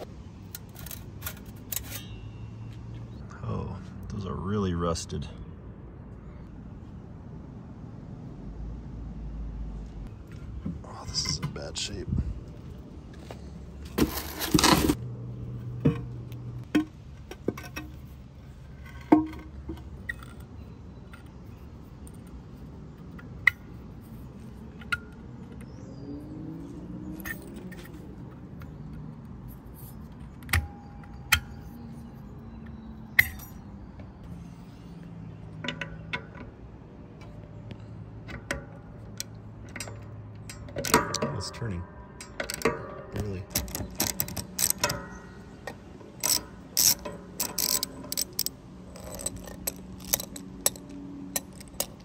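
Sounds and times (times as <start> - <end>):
metal grill parts clattering: 0.5 - 2.3, 39.6 - 52.0
metal clinks and knocks: 0.5 - 2.5, 13.8 - 25.8, 27.1 - 34.2, 38.2 - 52.0.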